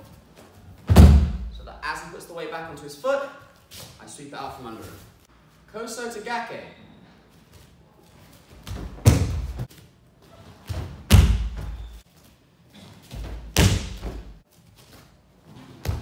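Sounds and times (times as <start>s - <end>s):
body thudding on a mat: 0.8s - 1.5s, 8.6s - 9.7s, 10.7s - 12.0s, 13.1s - 14.4s.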